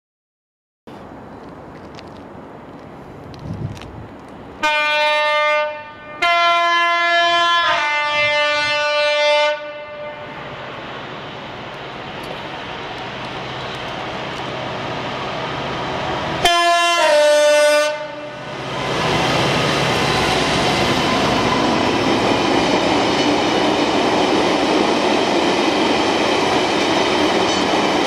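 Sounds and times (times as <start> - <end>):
train rumbling: 0.9 - 28.0
two-tone locomotive horn: 4.6 - 10.4, 16.4 - 18.6.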